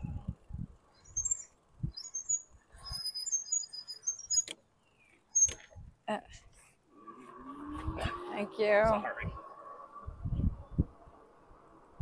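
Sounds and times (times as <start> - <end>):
wind rumbling on microphone: 0.0 - 3.1, 7.5 - 12.0.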